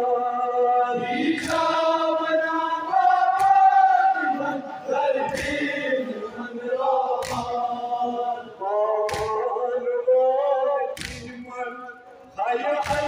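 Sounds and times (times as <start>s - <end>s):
men chanting in chorus: 0.0s - 13.0s.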